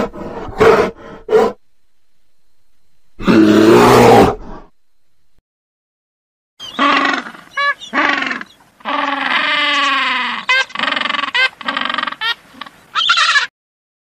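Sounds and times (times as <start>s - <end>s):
penguins calling: 6.6s - 13.5s.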